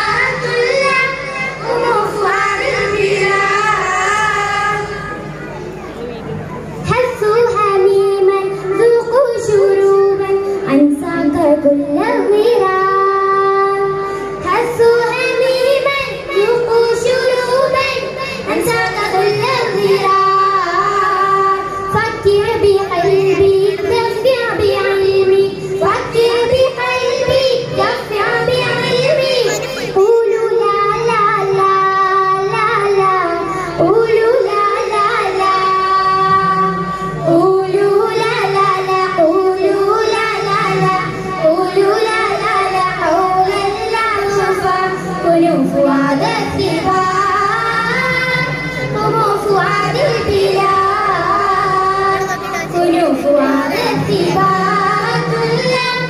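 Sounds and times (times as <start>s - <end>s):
children singing in unison: 16.7s - 32.5s, 37.6s - 56.0s.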